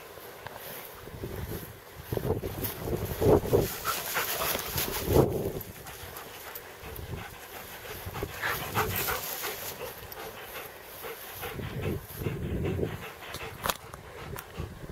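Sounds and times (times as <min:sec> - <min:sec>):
rustling dry grass: 0:00.0 - 0:14.1
dog panting: 0:03.5 - 0:14.9.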